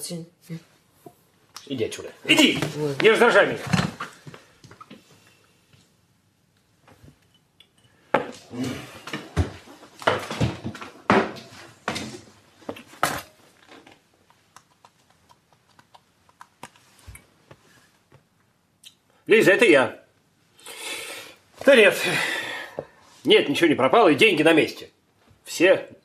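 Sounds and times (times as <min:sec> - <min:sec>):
objects knocking and rattling: 0:09.1 - 0:14.0.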